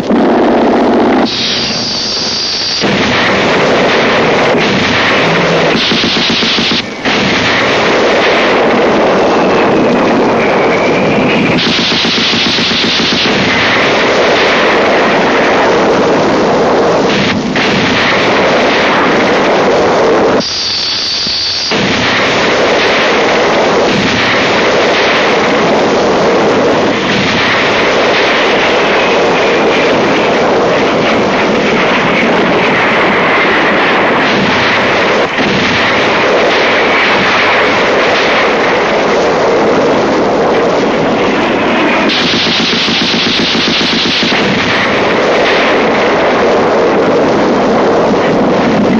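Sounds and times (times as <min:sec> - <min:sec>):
explosions: 0:00.0 - 0:48.9
machine-gun fire: 0:00.0 - 0:48.9
high thin tone: 0:01.3 - 0:02.9, 0:20.4 - 0:21.8.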